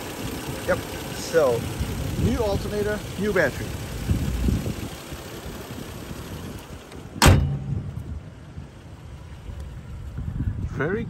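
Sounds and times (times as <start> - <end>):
car hood slamming: 7.1 - 8.0.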